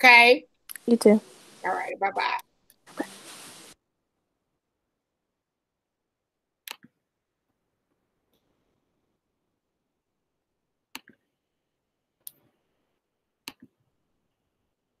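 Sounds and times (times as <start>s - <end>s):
computer mouse clicks: 6.6s - 7.0s, 10.9s - 11.3s, 13.4s - 13.8s.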